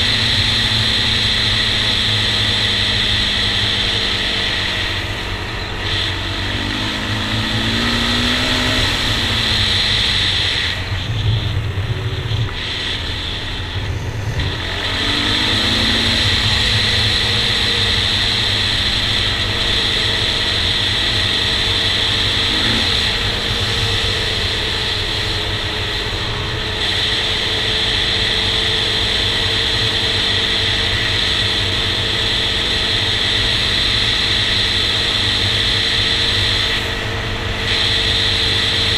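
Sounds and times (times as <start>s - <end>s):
wind noise: 0.0s - 26.9s
quad engine running: 0.0s - 38.9s.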